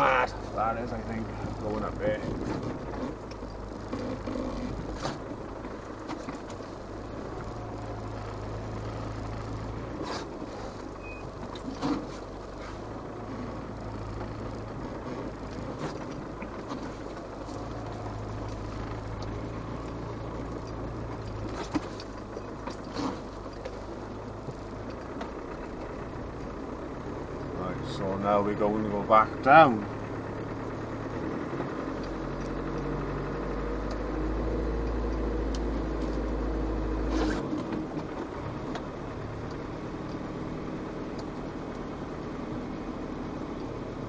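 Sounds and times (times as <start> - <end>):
diesel engine droning: 0.0 - 44.0.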